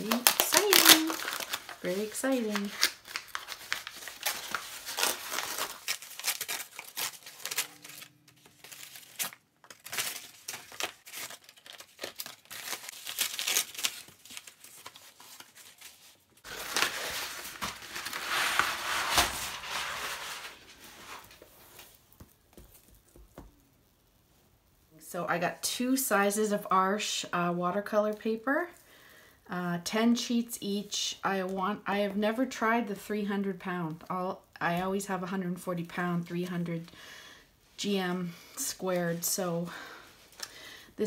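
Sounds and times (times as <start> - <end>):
paper crinkling and tearing: 0.0 - 23.3.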